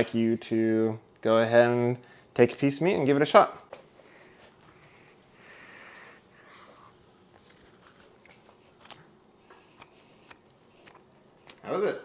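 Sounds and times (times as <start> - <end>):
child chewing: 5.8 - 11.7
faint mouth clicks and smacks: 7.3 - 11.6.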